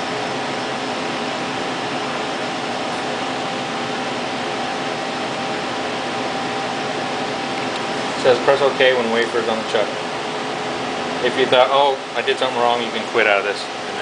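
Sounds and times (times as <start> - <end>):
ventilation fans rushing: 0.0 - 14.0.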